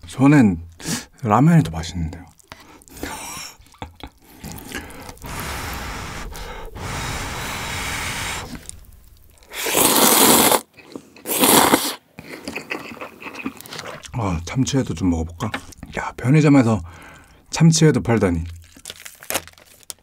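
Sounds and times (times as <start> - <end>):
noodles slurped loudly: 4.2 - 12.0
soft steady rushing sound: 4.4 - 9.6.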